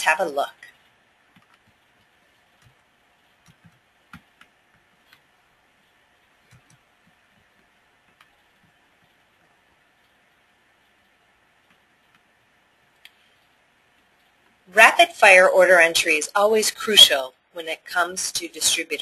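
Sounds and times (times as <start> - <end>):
faint clicks and soft taps: 0.6 - 14.6.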